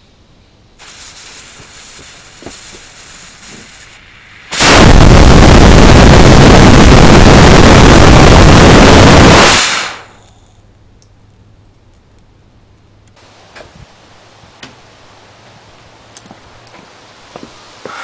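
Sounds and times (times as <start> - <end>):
rocket motor blast: 0.8 - 10.3
rocket motor hiss: 0.8 - 10.5.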